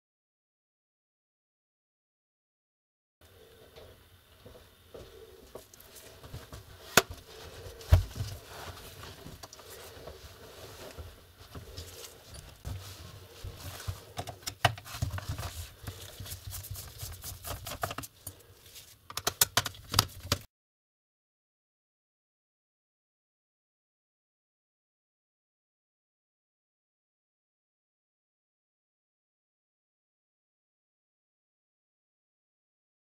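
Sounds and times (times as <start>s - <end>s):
laptop handling noise: 11.6s - 20.5s
screwdriver clicks and taps: 19.1s - 20.4s.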